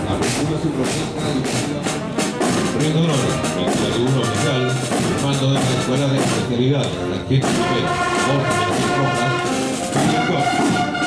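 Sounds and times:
music with drum beat and melody: 0.0s - 11.0s.

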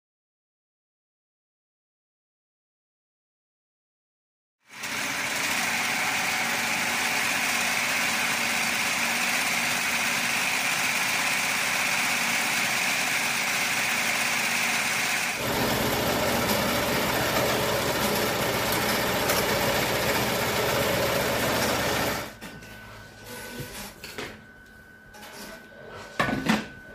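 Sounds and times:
embroidery machine stitching: 4.7s - 22.3s.

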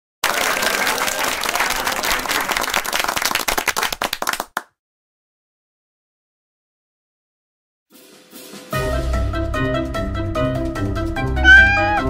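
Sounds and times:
applause: 0.2s - 4.8s.

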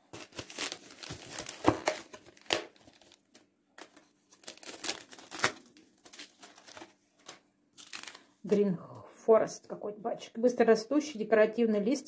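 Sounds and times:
paper packets crinkling: 0.0s - 8.4s.

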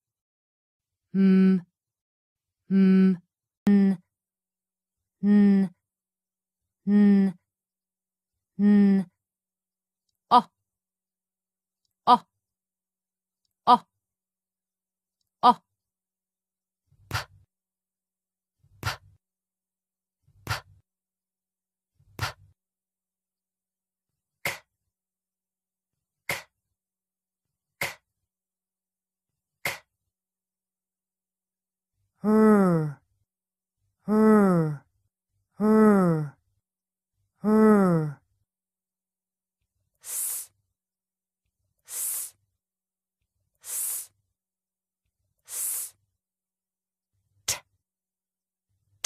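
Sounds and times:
woman sounding out consonants: 32.2s - 33.0s, 34.1s - 34.8s, 35.6s - 36.4s, 37.4s - 38.2s
woman hissing s sound: 40.0s - 40.6s, 41.9s - 42.4s, 43.6s - 44.2s, 45.5s - 46.0s, 47.5s - 47.7s.

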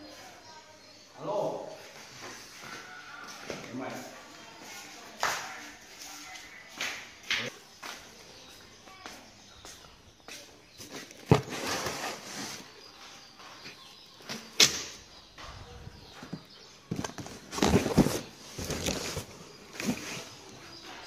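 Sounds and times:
cardboard scuffing and rustling: 11.2s - 12.8s, 16.2s - 20.4s.

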